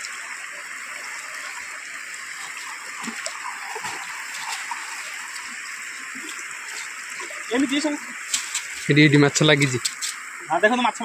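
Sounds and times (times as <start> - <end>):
flowing river water: 0.0 - 11.0
water splashing off net: 2.3 - 5.6.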